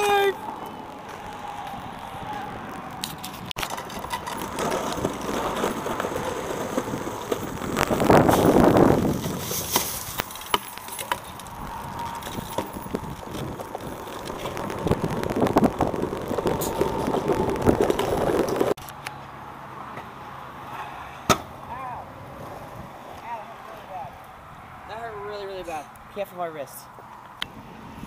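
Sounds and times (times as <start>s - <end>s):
scooter wheels rolling on asphalt: 0.0s - 28.0s
scooter deck clacking on ground: 2.3s - 19.2s.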